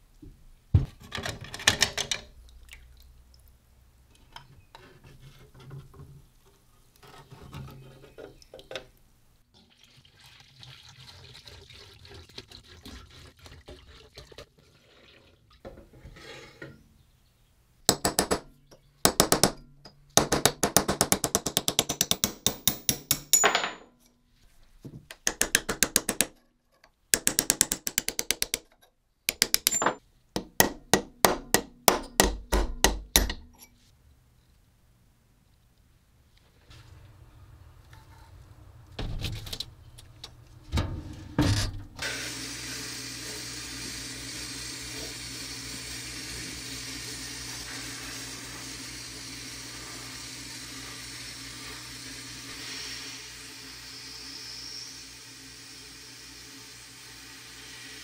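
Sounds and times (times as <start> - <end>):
hammer tapping metal punch: 17.9 - 23.9, 25.1 - 26.3, 27.2 - 33.7.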